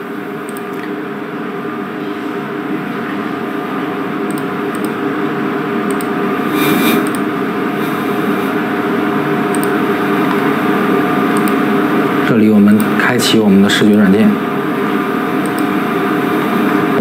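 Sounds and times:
machine hum and hiss: 0:00.0 - 0:17.0
brief rush of air: 0:06.4 - 0:07.2.

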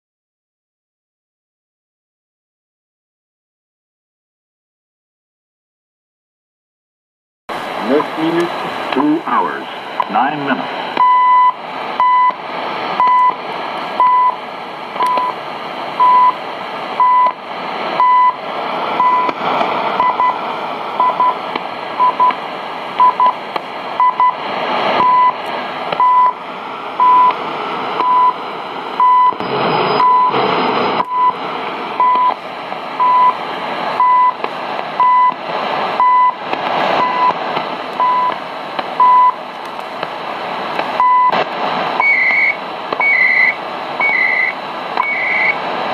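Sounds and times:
radio hiss and static: 0:07.5 - 0:45.9
time signal beeps: 0:11.0 - 0:12.4, 0:13.0 - 0:13.4, 0:14.0 - 0:14.4, 0:15.0 - 0:15.4, 0:16.0 - 0:16.4, 0:17.0 - 0:17.4, 0:18.0 - 0:18.4, 0:19.0 - 0:19.3, 0:20.0 - 0:20.4, 0:21.0 - 0:21.4, 0:23.0 - 0:23.4, 0:24.0 - 0:24.4, 0:25.0 - 0:25.4, 0:26.0 - 0:26.4, 0:27.0 - 0:27.4, 0:28.0 - 0:28.4, 0:29.0 - 0:30.4, 0:31.0 - 0:31.4, 0:32.0 - 0:32.4, 0:33.0 - 0:33.4, 0:34.0 - 0:34.4, 0:35.0 - 0:35.4, 0:36.0 - 0:36.4, 0:37.0 - 0:37.4, 0:38.0 - 0:38.4, 0:39.0 - 0:39.4, 0:41.0 - 0:41.4, 0:42.0 - 0:45.6.

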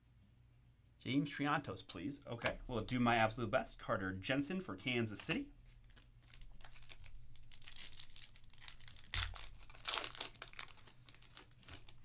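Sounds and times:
plastic wrapper tearing and crinkling: 0:05.8 - 0:12.0.

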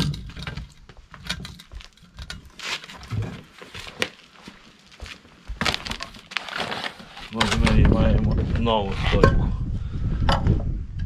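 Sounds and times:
footsteps on concrete: 0:00.8 - 0:06.4
cardboard box rustling: 0:05.6 - 0:07.5.

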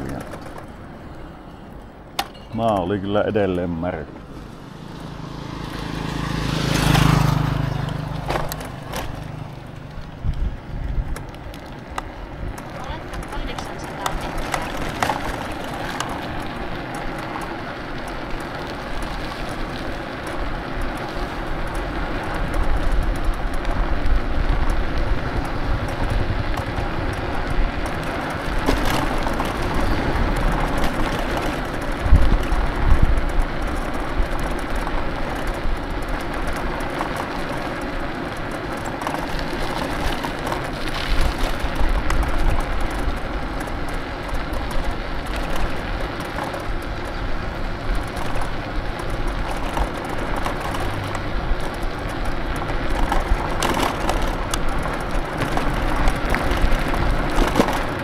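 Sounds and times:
wind rushing over microphone: 0:04.0 - 0:17.3, 0:21.1 - 0:36.8.

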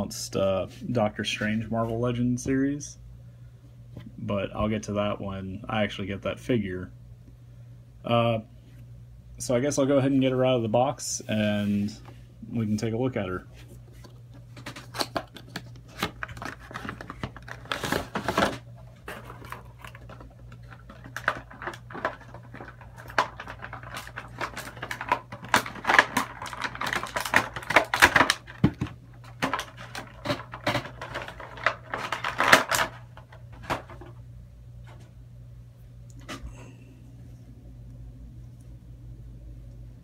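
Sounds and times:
packaging clicking and crinkling: 0:14.0 - 0:34.2.

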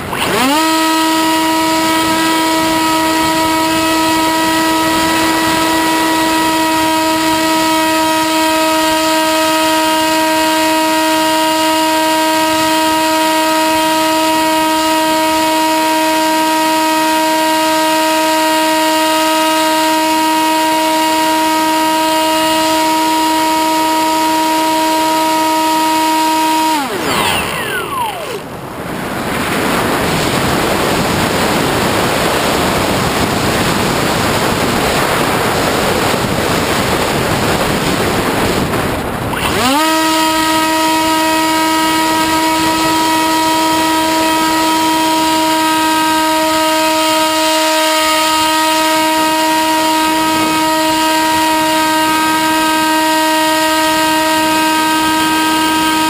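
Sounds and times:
electric motor and propeller: 0:00.0 - 0:56.0
wind rushing over airframe: 0:27.0 - 0:39.4.

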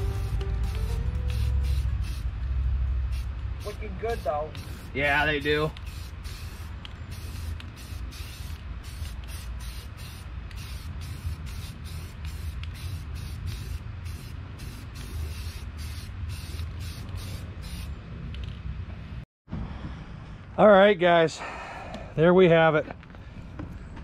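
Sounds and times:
spray paint can hissing: 0:00.0 - 0:18.0.

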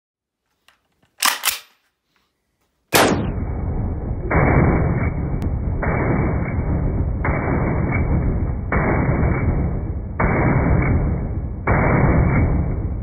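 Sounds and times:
rifle shots: 0:02.9 - 0:03.3, 0:05.8 - 0:13.0
dull steady rushing sound: 0:03.2 - 0:13.0.

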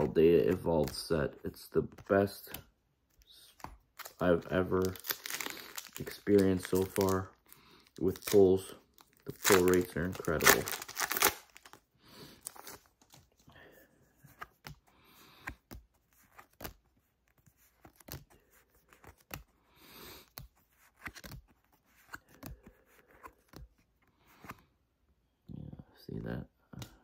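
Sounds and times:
cards sliding swishes: 0:14.2 - 0:24.7.

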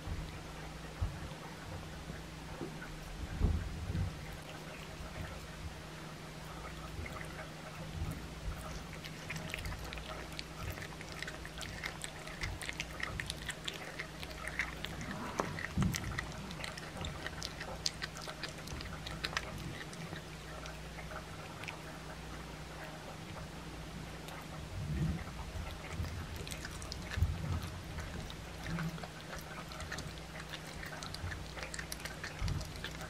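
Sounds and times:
low hum: 0:00.0 - 0:33.0
cat chewing bone: 0:06.4 - 0:23.5, 0:24.1 - 0:33.0.

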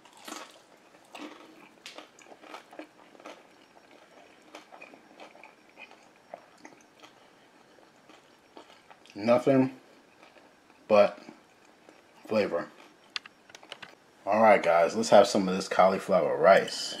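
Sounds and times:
person chewing: 0:00.0 - 0:09.2, 0:09.9 - 0:13.8.

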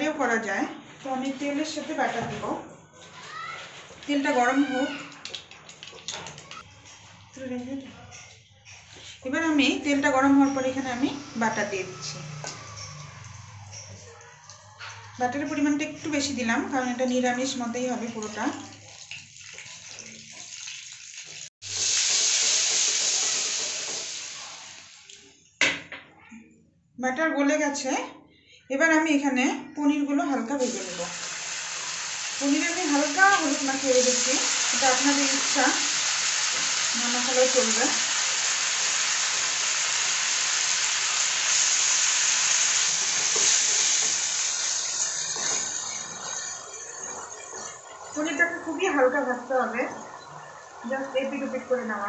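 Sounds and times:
butter sizzling in oil: 0:17.4 - 0:25.2, 0:30.6 - 0:52.0.

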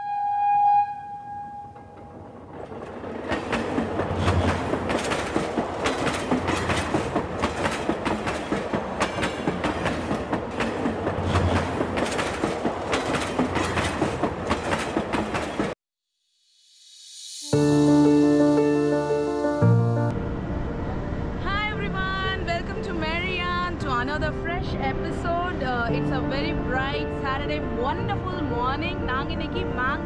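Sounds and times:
train rushing rumble: 0:01.8 - 0:15.8
wheels clattering over rail joints: 0:01.8 - 0:15.8.

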